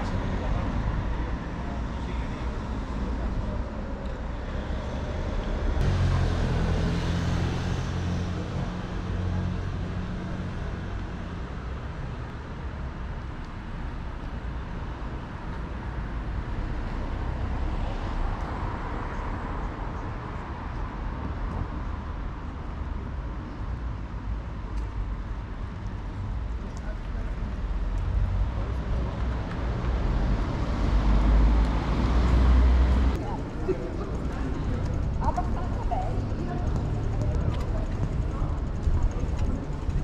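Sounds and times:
vehicle engine passing: 0:04.4 - 0:10.8, 0:28.2 - 0:40.0.

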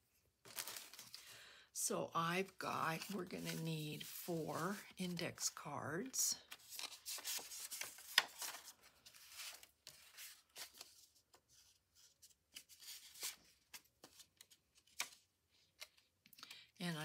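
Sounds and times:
paper cards rustling: 0:00.4 - 0:01.3, 0:03.0 - 0:04.3, 0:06.4 - 0:16.6.

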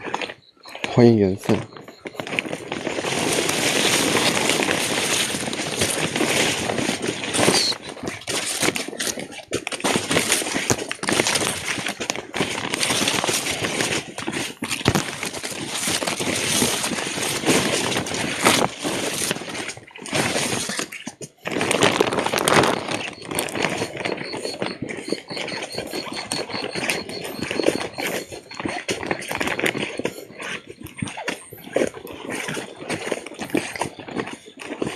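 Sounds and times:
handheld phone jostling: 0:00.0 - 0:34.9
weeds and brush rustling: 0:00.1 - 0:33.8.

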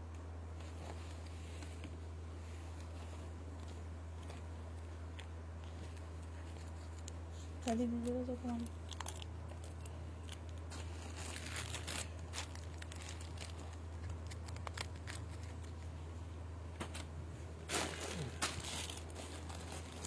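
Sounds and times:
steady low hum: 0:00.0 - 0:20.0
fabric rustling: 0:17.6 - 0:20.0.

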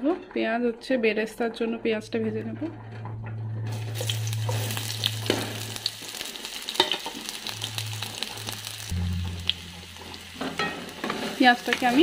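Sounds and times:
onions sizzling in hot oil: 0:03.7 - 0:12.0
low steady hum: 0:07.4 - 0:12.0.

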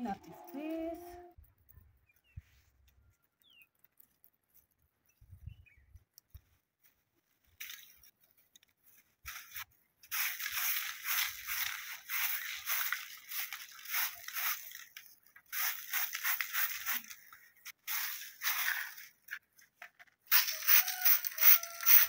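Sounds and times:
broom sweeping bare earth: 0:02.2 - 0:02.8, 0:06.6 - 0:19.4.

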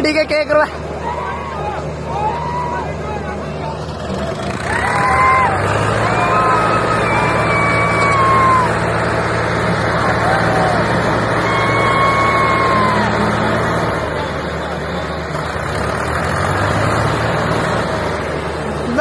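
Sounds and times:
tractor engines droning: 0:00.0 - 0:19.0
people shouting: 0:00.9 - 0:03.3, 0:04.4 - 0:09.1, 0:09.8 - 0:13.4.

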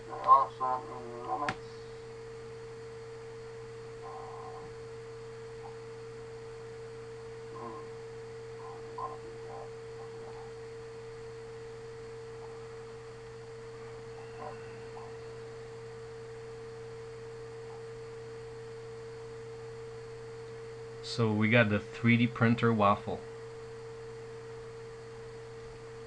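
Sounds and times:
steady tone: 0:00.0 - 0:19.9
electrical hum: 0:00.0 - 0:26.0.

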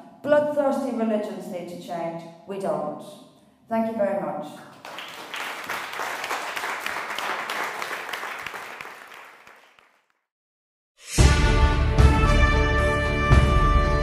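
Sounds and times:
audience clapping: 0:04.7 - 0:10.2.

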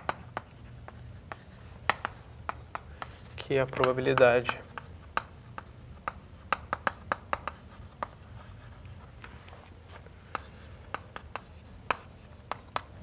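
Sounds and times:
chalk scratching on chalkboard: 0:00.0 - 0:09.6, 0:10.3 - 0:13.0.

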